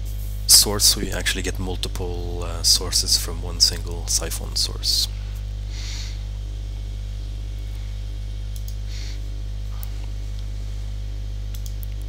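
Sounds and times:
electrical mains hum: 0:00.0 - 0:12.0
computer mouse clicks: 0:08.5 - 0:08.8, 0:11.5 - 0:12.0.

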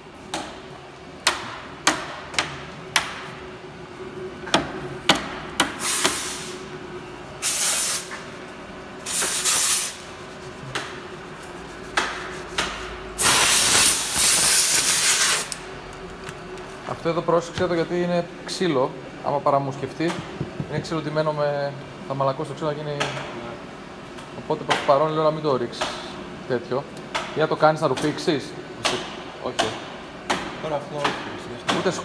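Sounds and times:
spray can hissing: 0:07.4 - 0:08.1, 0:09.1 - 0:10.1, 0:13.2 - 0:15.5.

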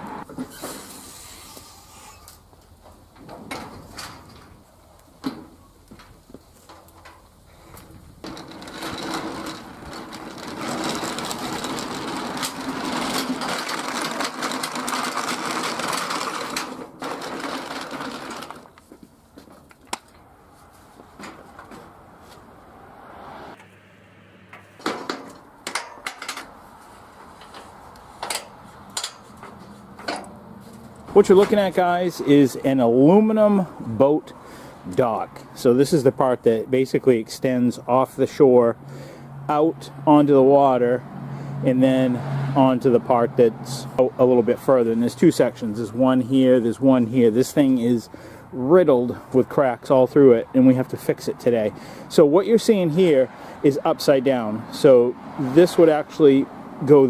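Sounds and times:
dolly wheels rattling over asphalt: 0:05.3 - 0:20.2, 0:24.9 - 0:33.7, 0:41.7 - 0:57.0.

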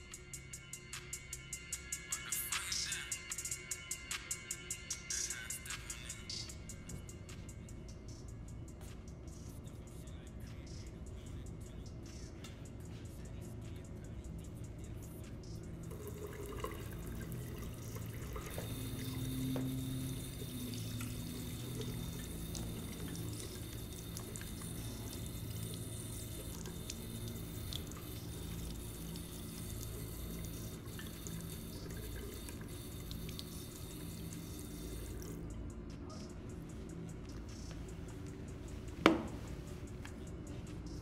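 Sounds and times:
faucet running into sink: 0:15.9 - 0:35.4.

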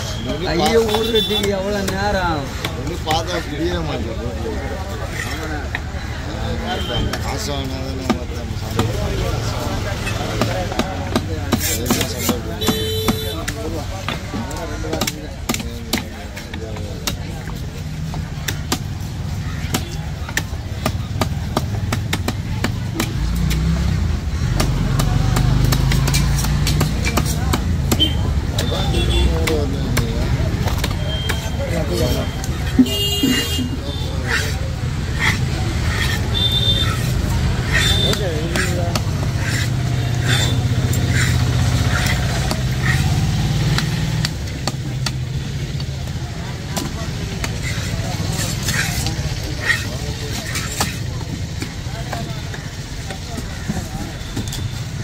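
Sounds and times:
knife chopping on wooden block: 0:10.3 - 0:17.6, 0:24.5 - 0:28.7
cleaver chopping fish on wood: 0:10.3 - 0:28.7, 0:29.4 - 0:33.6, 0:34.2 - 0:45.9.

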